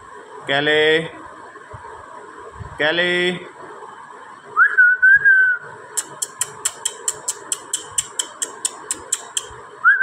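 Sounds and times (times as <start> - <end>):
sharp clicks: 6.0 - 9.6.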